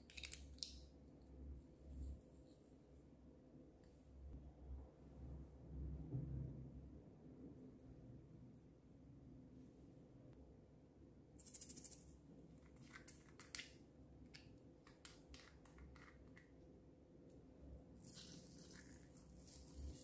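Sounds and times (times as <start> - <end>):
beads rattling in plastic pot: 18.0 - 20.0
beads shaken out hiss: 18.0 - 20.0.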